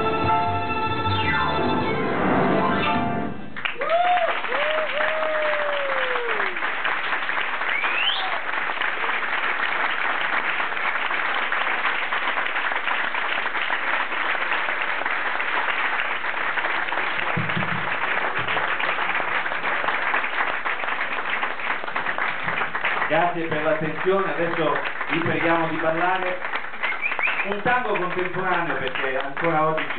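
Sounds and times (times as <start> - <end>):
audience applauding: 3.5 - 29.9.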